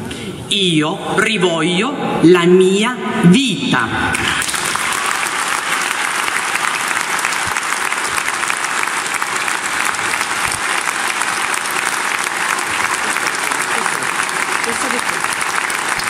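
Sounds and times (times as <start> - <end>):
audience applauding: 4.2 - 16.0.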